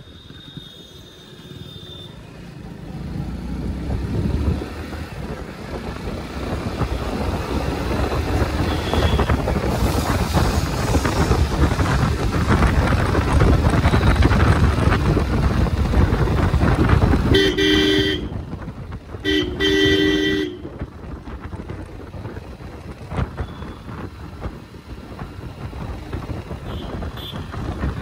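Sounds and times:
wind noise on microphone: 3.6s - 28.0s
motorcycle engine running: 10.4s - 28.0s.

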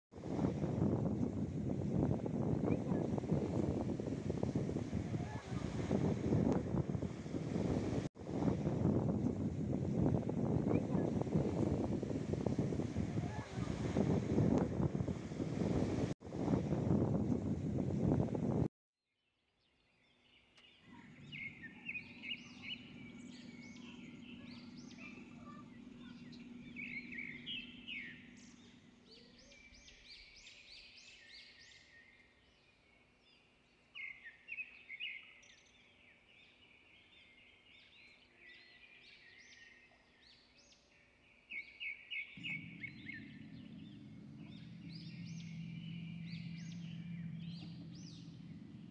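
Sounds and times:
songbirds chirping trills: 9.2s - 16.1s, 19.6s - 48.9s
low steady hum: 20.8s - 29.9s, 42.4s - 48.9s.

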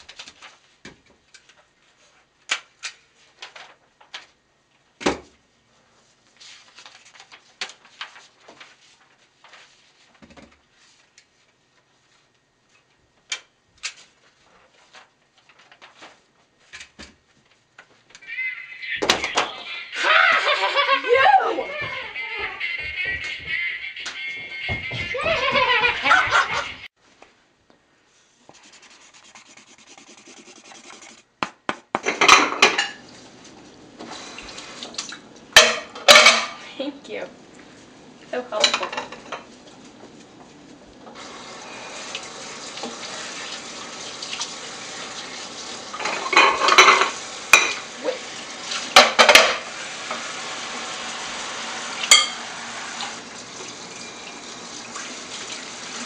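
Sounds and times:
plates and cutlery clattering: 32.0s - 33.0s, 35.6s - 36.6s, 38.6s - 39.5s, 46.0s - 47.8s, 48.9s - 49.7s, 52.1s - 52.5s
tap water running: 32.2s - 36.3s, 41.0s - 56.0s.

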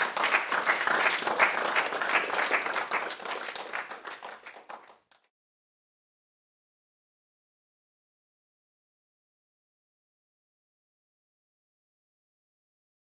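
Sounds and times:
audience applauding: 0.0s - 5.3s.

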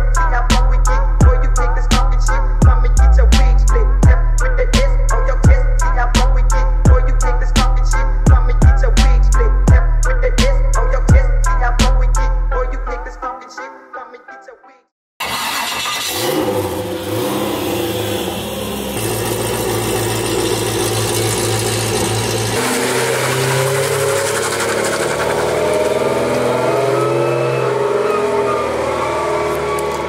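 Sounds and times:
car engine revving: 15.2s - 30.0s.

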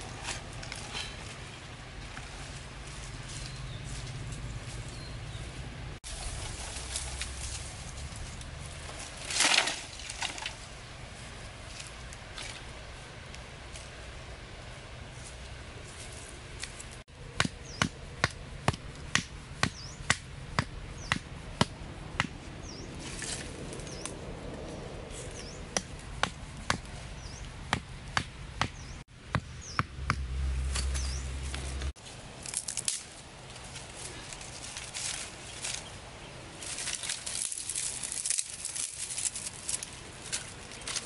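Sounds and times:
blade chopping saplings: 17.2s - 24.2s, 25.3s - 33.1s.

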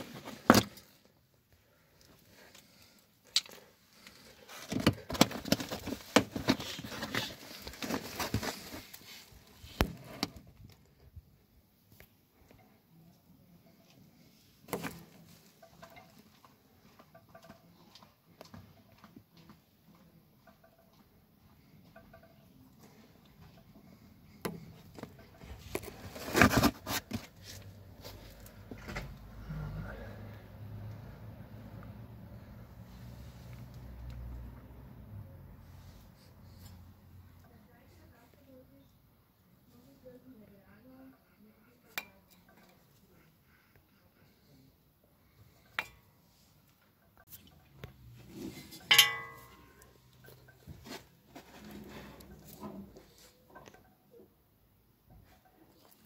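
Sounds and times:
scraping and rustling: 3.6s - 10.5s, 24.9s - 28.9s.

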